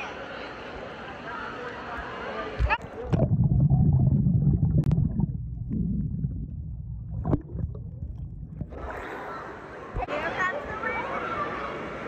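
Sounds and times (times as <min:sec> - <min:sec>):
muffled underwater churning rumble: 0:02.6 - 0:10.1.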